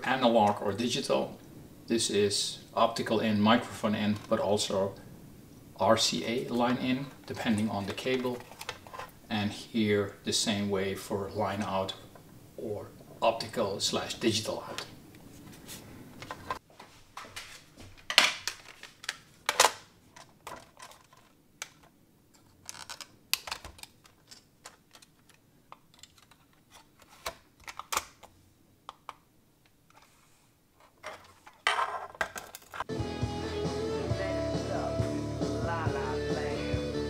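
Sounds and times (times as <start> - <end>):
music: 32.9 - 37.0.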